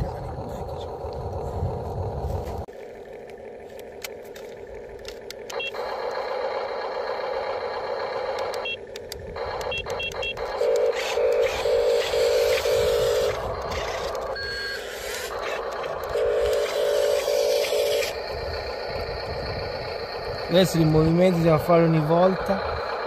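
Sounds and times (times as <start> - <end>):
small electric motors whirring: 0.2 - 23.0
low pulsing beep: 5.5 - 6.0, 9.4 - 13.2, 14.3 - 15.2
clicks: 8.3 - 11.6.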